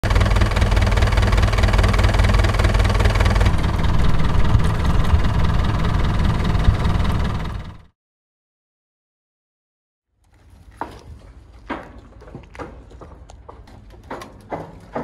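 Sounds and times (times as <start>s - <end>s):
marine engine idling roughly: 0.0s - 7.9s
outboard motor idling: 0.0s - 7.9s.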